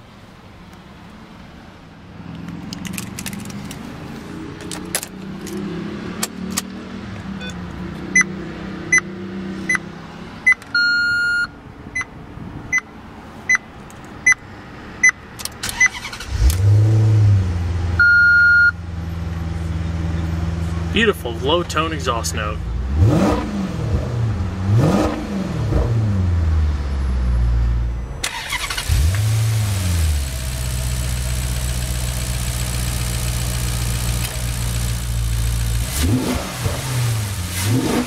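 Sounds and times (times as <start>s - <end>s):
car engine starting and idling: 0.0s - 10.9s, 11.9s - 38.0s.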